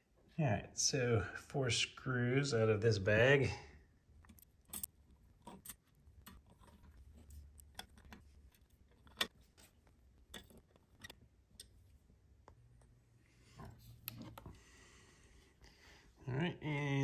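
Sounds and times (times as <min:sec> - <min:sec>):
screwdriver clicking on metal: 0:04.3 - 0:09.7, 0:10.3 - 0:11.8.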